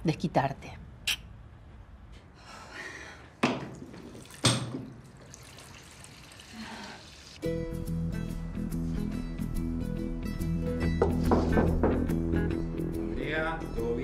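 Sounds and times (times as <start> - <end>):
water splashes: 3.7 - 7.4
music: 7.4 - 14.0.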